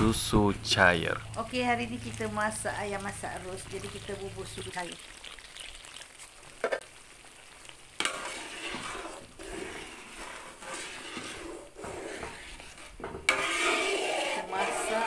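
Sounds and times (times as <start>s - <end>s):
metal ladle scraping a wok: 8.0s - 15.0s.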